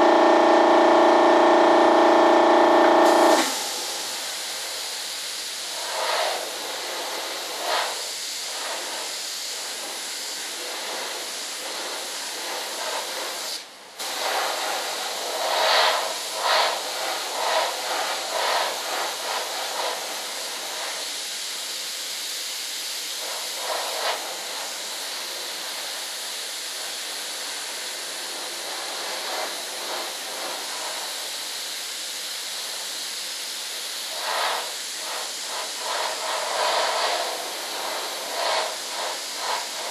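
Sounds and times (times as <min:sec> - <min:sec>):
paint spray gun hissing: 0:00.0 - 0:39.9.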